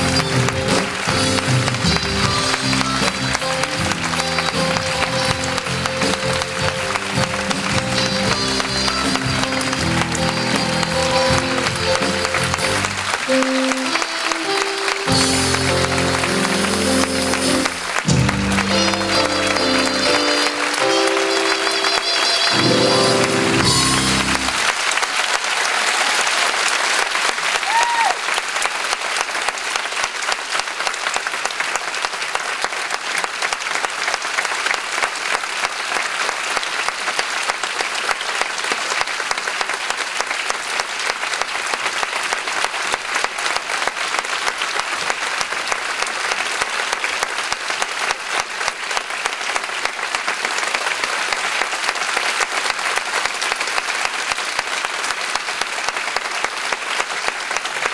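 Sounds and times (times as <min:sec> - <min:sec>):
music closing notes: 0:00.0 - 0:24.7
audience applauding: 0:00.0 - 0:57.9.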